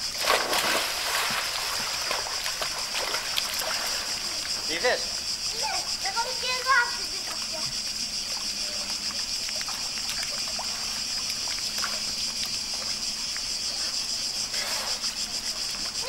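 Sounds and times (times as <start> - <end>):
cicadas droning: 0.0 - 16.0
water splashing and dripping: 0.0 - 16.0.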